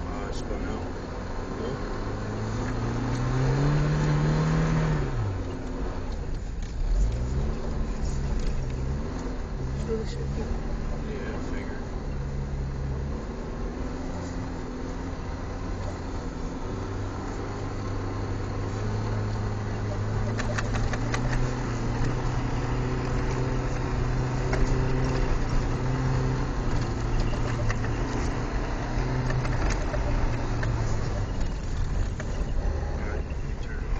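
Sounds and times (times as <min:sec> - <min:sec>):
car engine running: 0:00.0 - 0:33.9
sharp clicks and ticks: 0:20.2 - 0:33.9.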